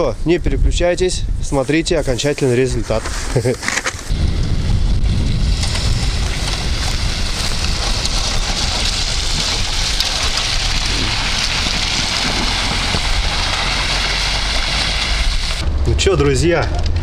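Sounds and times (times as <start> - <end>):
vehicle road noise: 4.1 - 17.0.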